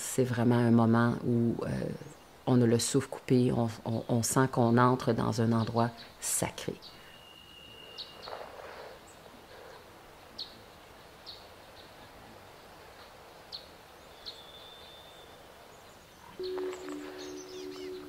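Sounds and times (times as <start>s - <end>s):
outdoor ambience hiss: 0.0s - 18.0s
bird chirping: 6.8s - 9.8s, 13.5s - 18.0s
bird whistle: 16.4s - 18.0s.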